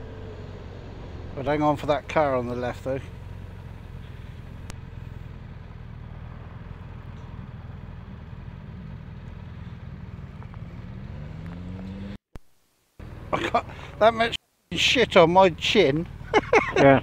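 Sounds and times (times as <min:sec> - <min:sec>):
motorcycle engine revving: 0:00.0 - 0:12.2.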